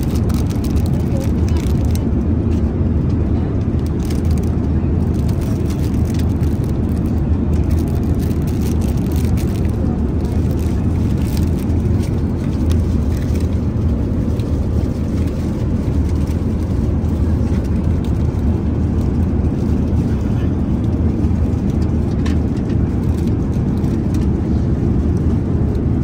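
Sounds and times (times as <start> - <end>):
plastic wrapping crinkling: 0.0 - 2.0, 3.9 - 16.9
aircraft cabin low rumble: 0.0 - 26.0.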